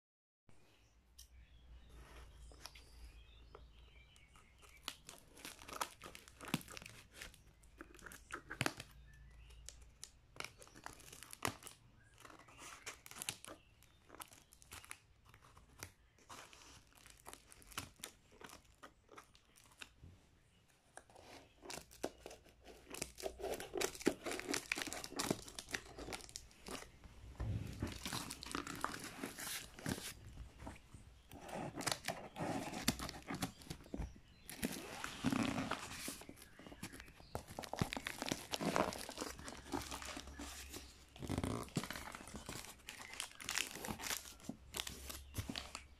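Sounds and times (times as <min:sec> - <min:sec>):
plastic crinkling: 0:03.5 - 0:20.0, 0:21.0 - 0:45.9
packing tape tearing: 0:21.7 - 0:26.8, 0:34.5 - 0:45.8.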